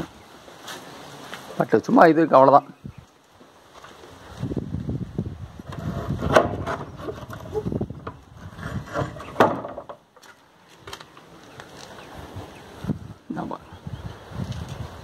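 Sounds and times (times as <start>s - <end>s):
shed door rattling and scraping: 5.6s - 10.0s.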